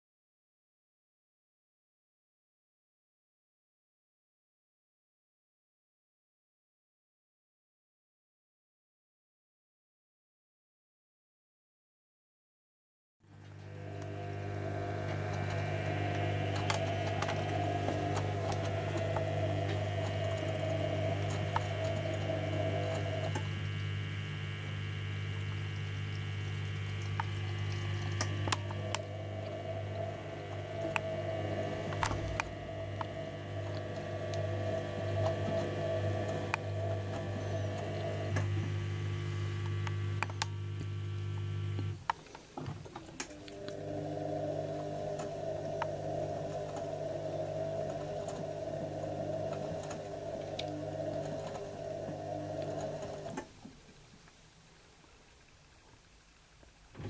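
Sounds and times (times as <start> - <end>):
washing machine drum whine: 13.3 - 54.1
washing machine pump hum: 13.3 - 57.0.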